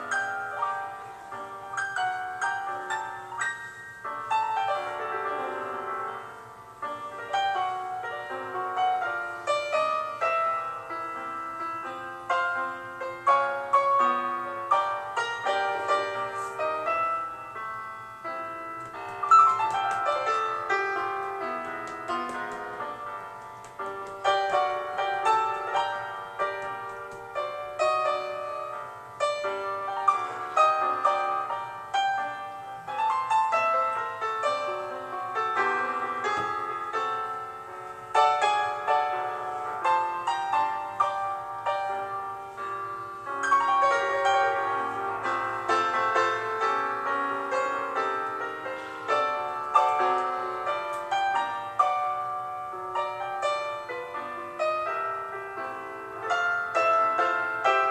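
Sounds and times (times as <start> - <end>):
solo piano music: 0.0 - 57.9.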